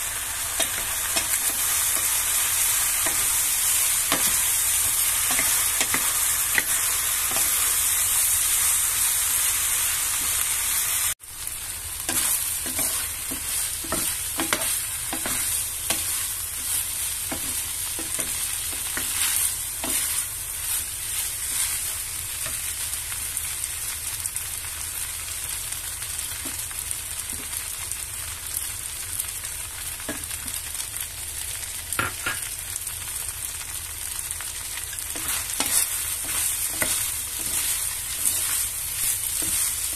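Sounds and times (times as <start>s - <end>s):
noodles sizzling in a frying pan: 0.0s - 39.9s
wooden spatula scraping a pan: 12.1s - 22.7s, 35.1s - 39.9s.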